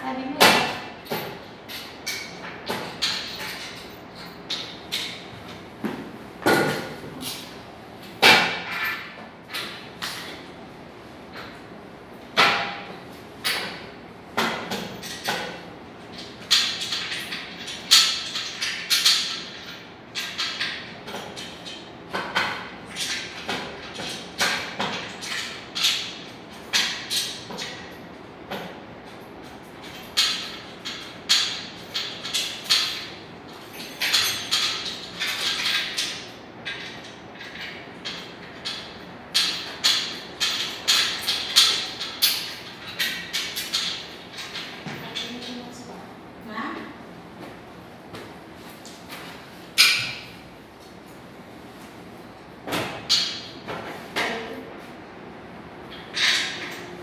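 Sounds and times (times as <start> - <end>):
furniture parts knocking and scraping: 4.4 - 7.6.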